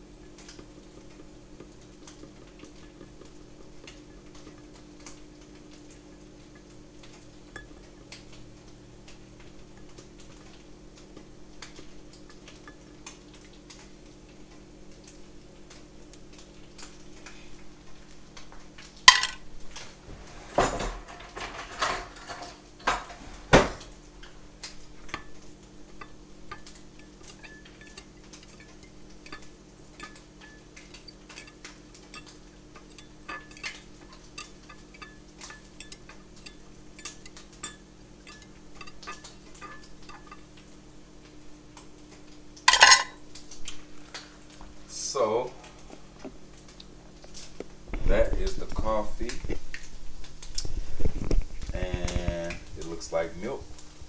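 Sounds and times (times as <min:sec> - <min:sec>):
metal spoon stirring in glass cup: 0:25.1 - 0:40.4.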